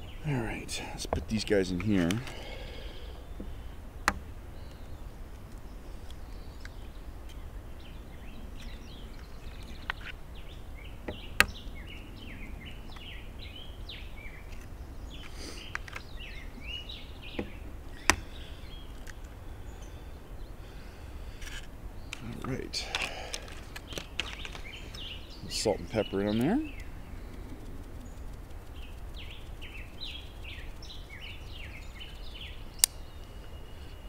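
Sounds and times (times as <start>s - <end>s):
low background rush: 0.0s - 34.0s
small birds chirping: 0.0s - 34.0s
shell crunches: 21.4s - 25.1s
eggs cracking against plastic cup: 21.5s - 25.1s.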